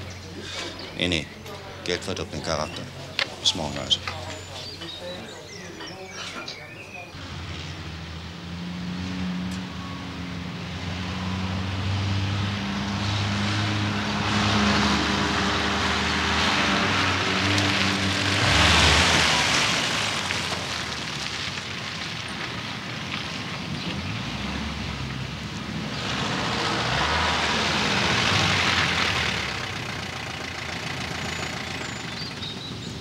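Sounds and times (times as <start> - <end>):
car engine passing by: 7.1 - 32.9.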